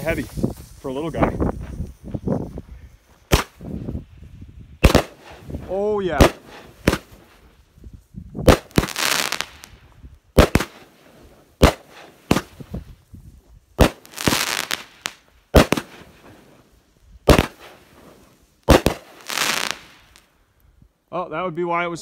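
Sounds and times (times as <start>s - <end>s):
firework bangs: 0.0s - 3.9s, 4.8s - 7.4s, 8.4s - 13.0s, 13.8s - 16.6s, 17.2s - 20.3s
firework crackling: 0.0s - 20.4s.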